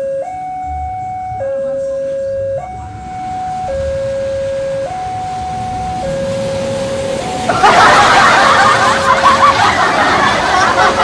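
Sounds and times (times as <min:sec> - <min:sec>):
two-tone level crossing alarm: 0:00.0 - 0:09.9
rail trolley rough noise: 0:02.8 - 0:11.0.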